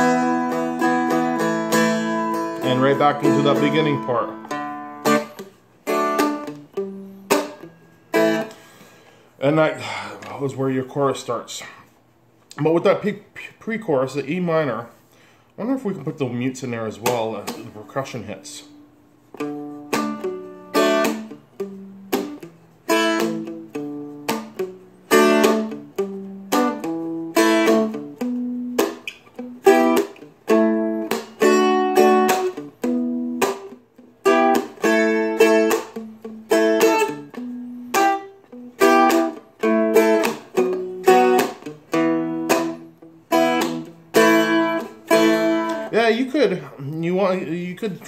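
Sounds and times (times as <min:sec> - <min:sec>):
dulcimer chords strummed: 0:00.0 - 0:05.1.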